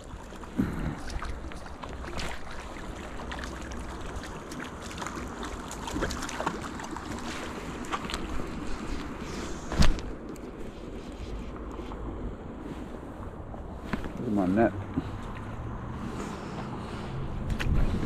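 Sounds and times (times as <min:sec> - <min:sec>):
fish splashing at surface: 0:00.0 - 0:08.5
rushing creek water: 0:00.0 - 0:12.4
wind on microphone: 0:14.9 - 0:18.0.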